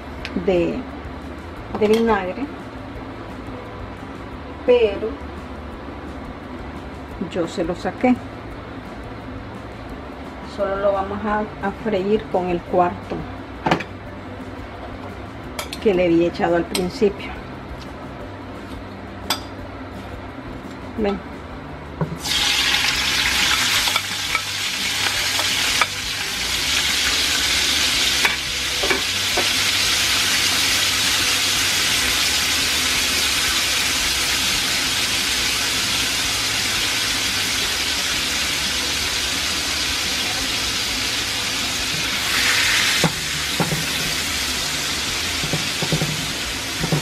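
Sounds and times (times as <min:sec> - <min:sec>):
onions sizzling in hot oil: 0:22.2 - 0:47.0.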